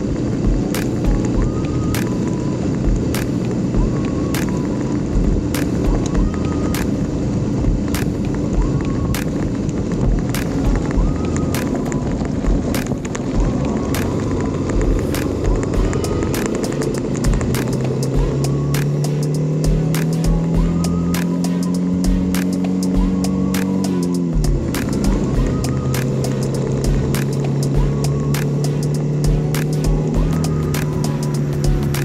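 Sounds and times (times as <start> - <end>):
motorcycle engine running: 0.0 - 32.0
sharp clicks and knocks: 11.6 - 20.5.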